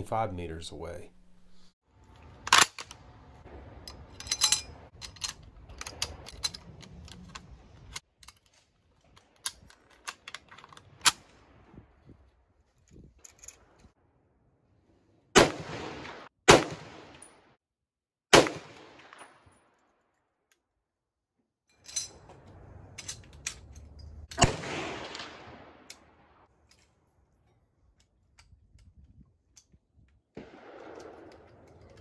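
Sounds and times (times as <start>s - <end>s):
metallic clicks of rifle handling: 2.1s - 3.1s, 3.7s - 11.3s, 12.7s - 13.9s, 21.7s - 24.5s, 25.8s - 32.0s
rifle shots with ringing tail: 15.4s - 17.4s, 18.3s - 19.5s, 24.4s - 26.4s, 30.4s - 31.6s.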